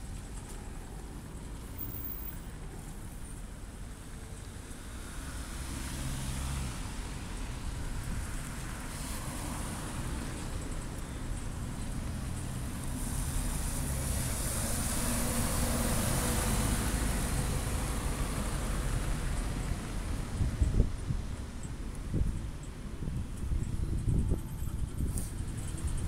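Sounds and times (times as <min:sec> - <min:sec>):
bus passing close by: 0:04.8 - 0:21.7
cars driving past: 0:04.9 - 0:20.9.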